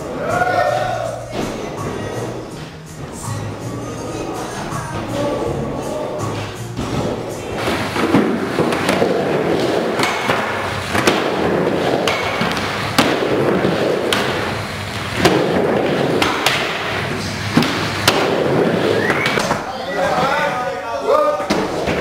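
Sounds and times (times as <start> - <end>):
skateboard wheels rolling: 0.0 - 20.5, 21.4 - 22.0
skateboard clacking on ramp: 6.8 - 19.6.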